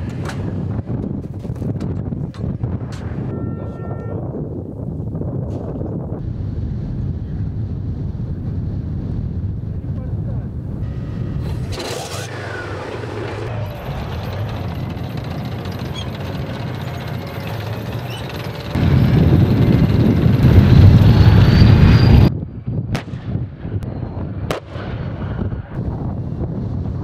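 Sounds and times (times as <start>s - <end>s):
tank diesel engine running: 10.8s - 22.3s
sharp crack: 22.9s - 23.4s.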